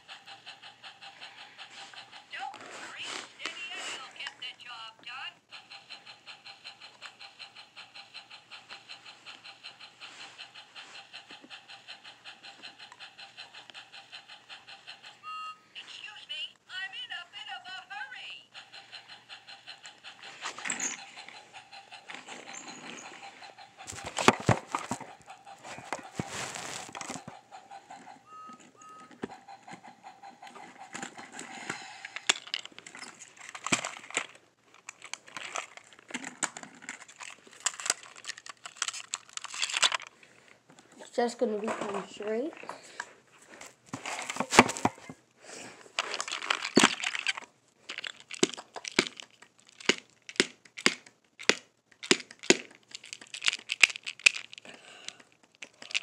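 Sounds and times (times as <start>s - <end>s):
toy train clatter: 0.0s - 4.9s, 5.5s - 15.2s, 18.5s - 43.1s, 45.8s - 56.0s
toy train motor whining: 0.0s - 16.2s, 18.5s - 40.3s.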